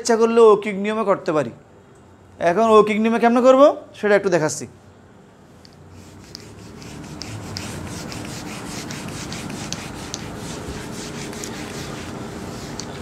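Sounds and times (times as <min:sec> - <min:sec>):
eraser rubbing on whiteboard: 0:05.9 - 0:13.0.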